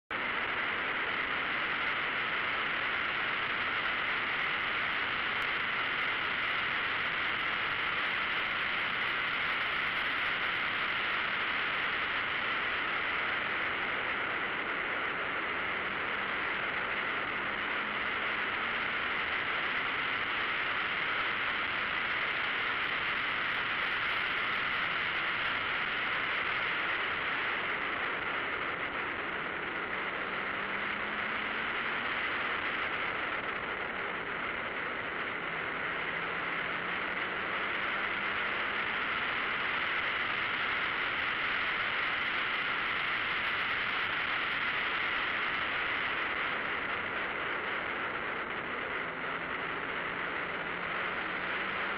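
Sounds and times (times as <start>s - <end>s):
wind rushing over camera: 0.1s - 51.9s.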